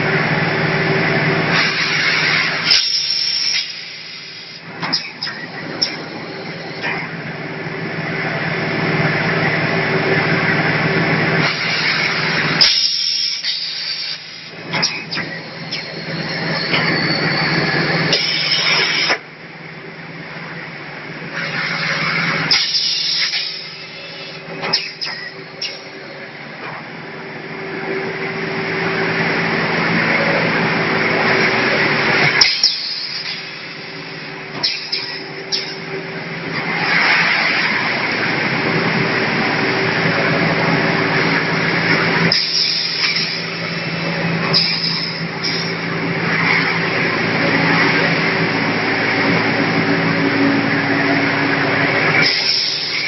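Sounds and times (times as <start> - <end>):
machine rushing noise: 21.4 - 53.0.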